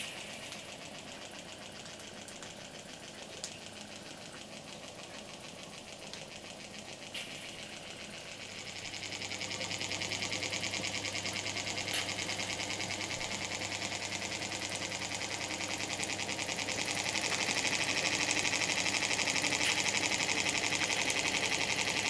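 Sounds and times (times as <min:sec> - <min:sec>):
toy steam engine puffing: 0:16.9 - 0:22.0.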